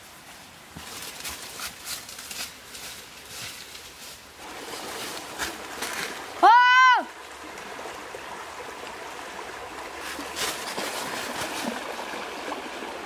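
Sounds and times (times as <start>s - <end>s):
footsteps crunching dry leaves: 0.7s - 6.2s.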